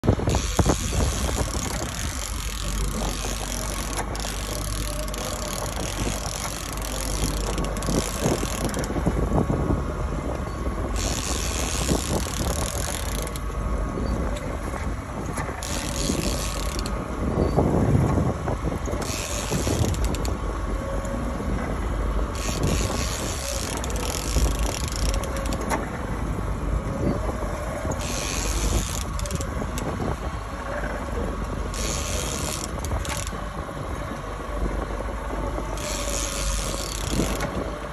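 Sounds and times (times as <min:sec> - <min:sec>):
fishing reel whirring and ratcheting: 0:00.0 - 0:09.5, 0:10.8 - 0:14.3, 0:15.4 - 0:17.7, 0:18.7 - 0:20.4, 0:22.3 - 0:26.1, 0:27.8 - 0:30.2, 0:31.6 - 0:33.4, 0:35.7 - 0:37.7
outboard motor rumble: 0:00.0 - 0:37.9.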